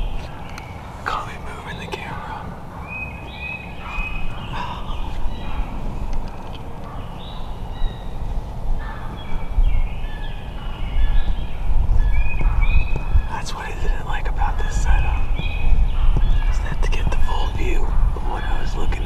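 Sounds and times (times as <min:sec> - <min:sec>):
turkeys calling: 0:12.1 - 0:19.0.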